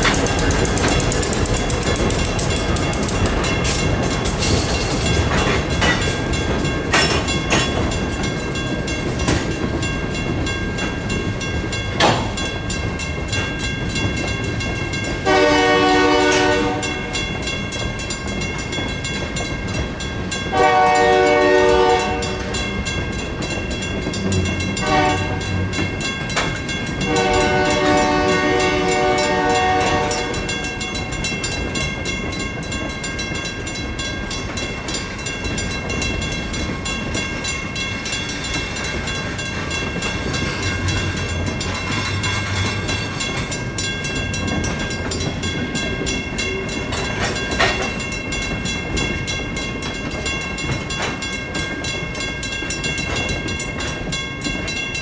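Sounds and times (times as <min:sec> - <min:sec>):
railroad crossing bell ringing: 0:00.0 - 0:55.0
locomotive horn blasts: 0:15.2 - 0:17.0, 0:20.5 - 0:22.6, 0:24.7 - 0:25.7, 0:27.0 - 0:30.6.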